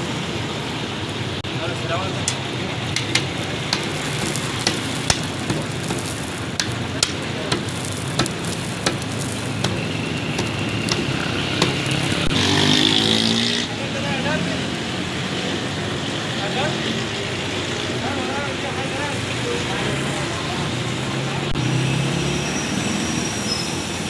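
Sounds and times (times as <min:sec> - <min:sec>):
metal spatula striking griddle: 0:02.3 - 0:12.4
flatbread sizzling in oil: 0:02.4 - 0:16.7
vehicle passing: 0:02.8 - 0:15.1.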